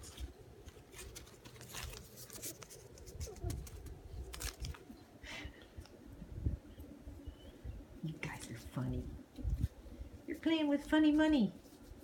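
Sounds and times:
paper bills crinkling: 0.0 - 4.9.

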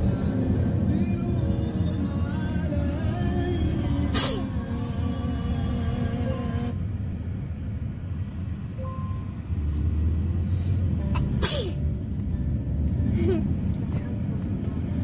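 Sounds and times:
music: 0.0 - 6.7, 11.0 - 15.0
car interior rumble: 0.0 - 15.0.

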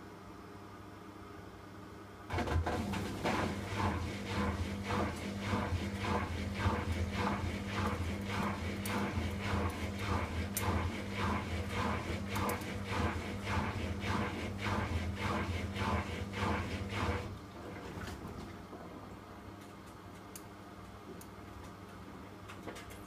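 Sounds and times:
dryer motor hum: 2.3 - 19.6.

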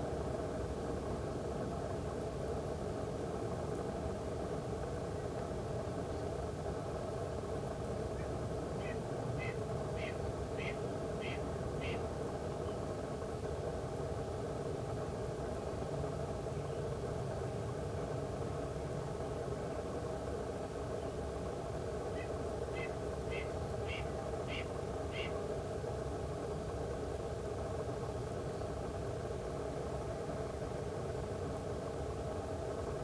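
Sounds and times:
low background rumble: 0.0 - 33.0
hawk calling: 8.8 - 12.0, 22.2 - 25.4.

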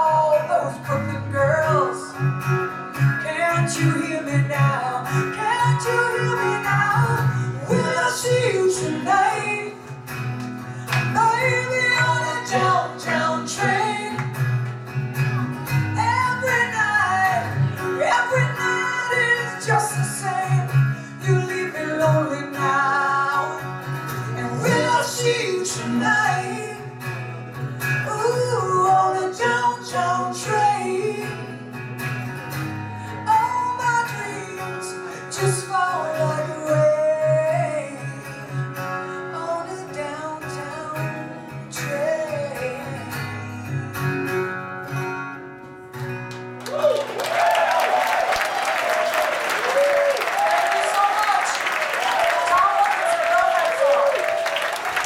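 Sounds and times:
woman singing: 0.0 - 2.3, 3.0 - 10.2, 10.9 - 14.4, 15.9 - 27.2, 27.9 - 31.7, 33.1 - 44.3
bass guitar: 0.0 - 18.6
acoustic guitar: 0.0 - 55.0
audience applauding: 46.3 - 55.0.

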